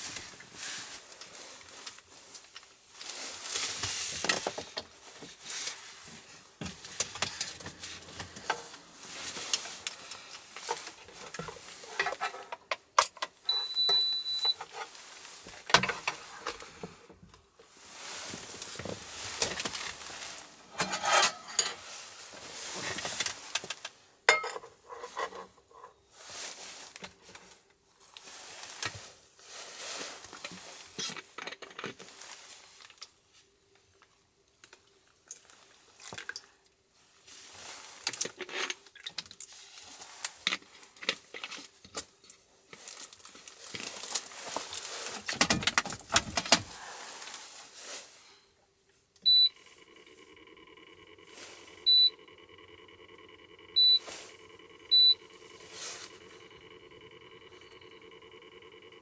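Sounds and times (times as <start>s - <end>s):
short high electronic beep: 13.5s - 14.5s
clicks and knocks of handling: 15.5s - 17.4s, 40.5s - 46.7s.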